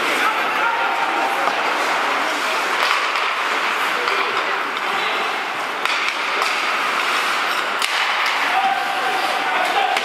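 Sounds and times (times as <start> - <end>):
arena noise: 0.0 - 10.0
hockey sticks and puck clacking: 0.0 - 10.0
skates hissing on ice: 5.4 - 9.8.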